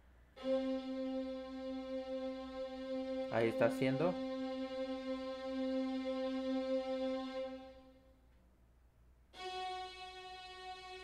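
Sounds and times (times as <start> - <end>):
synth string notes: 0.4 - 8.0.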